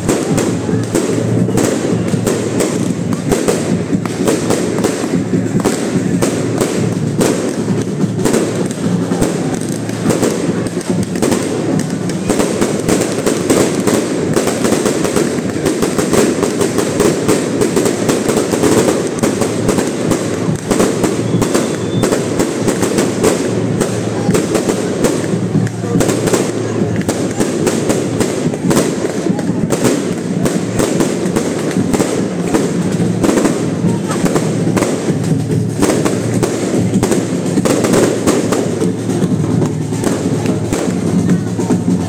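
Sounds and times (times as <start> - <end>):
din of large crowd: 0.0 - 42.0
firecrackers crackling: 0.0 - 42.0.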